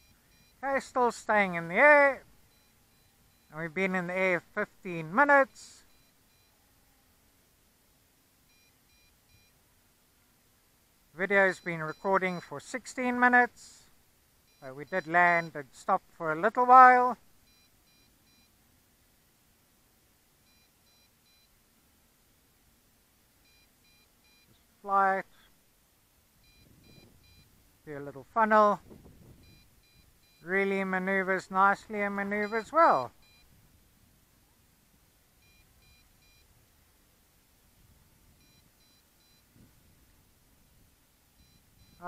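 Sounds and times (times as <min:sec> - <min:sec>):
faint high beeps: 0:00.0 - 0:04.4, 0:05.0 - 0:07.1, 0:08.4 - 0:09.6, 0:11.2 - 0:15.7, 0:16.8 - 0:18.6, 0:20.4 - 0:21.6, 0:23.4 - 0:25.6, 0:26.4 - 0:27.6, 0:29.3 - 0:33.6, 0:35.4 - 0:36.6, 0:38.3 - 0:39.6, 0:41.3 - 0:42.0
short high beeps: 0:11.5 - 0:12.4, 0:26.4 - 0:27.5, 0:29.4 - 0:30.5, 0:32.3 - 0:33.5, 0:35.4 - 0:36.5, 0:38.4 - 0:39.5, 0:41.4 - 0:42.0.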